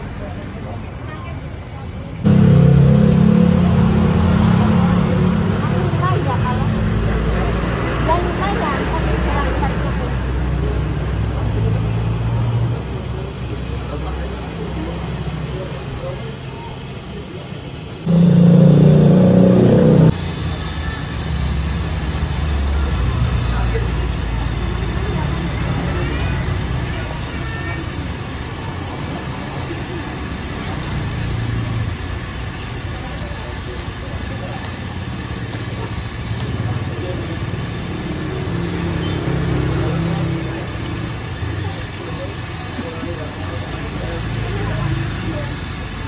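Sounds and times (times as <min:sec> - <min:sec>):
engine running loudly: 0:02.2 - 0:16.6, 0:18.0 - 0:32.1, 0:33.0 - 0:46.0
low steady rumble: 0:02.3 - 0:06.6, 0:18.0 - 0:20.4
frying in hot oil sizzling: 0:02.3 - 0:19.5, 0:20.1 - 0:46.0.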